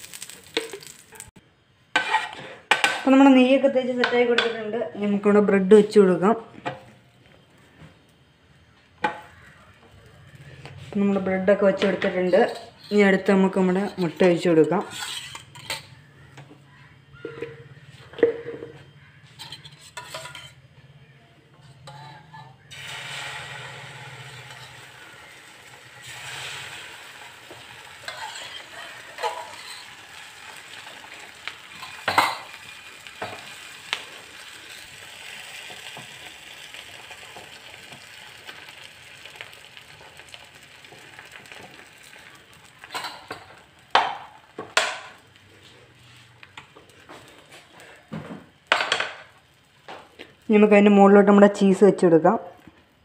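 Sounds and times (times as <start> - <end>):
food sizzling in a pan: 0.0 - 1.4, 21.8 - 51.6.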